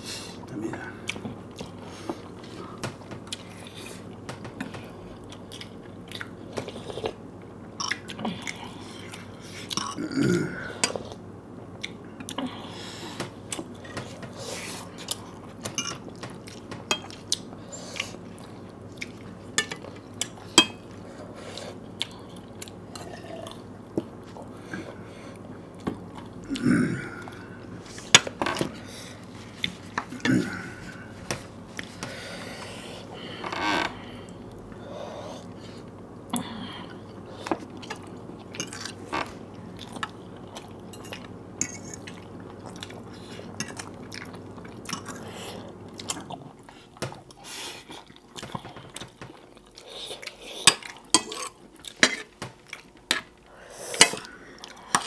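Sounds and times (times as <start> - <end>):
chewing and mouth noises: 1.0 - 7.2, 39.8 - 53.4.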